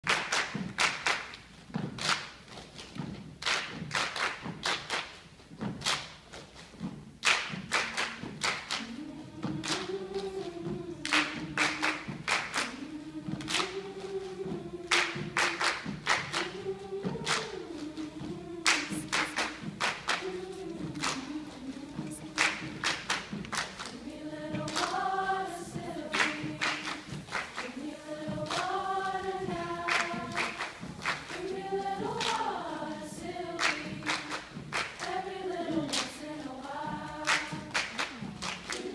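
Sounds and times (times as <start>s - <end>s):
choir clapping a rhythm: 0.0s - 38.9s
choir singing a sustained melody: 8.7s - 38.9s.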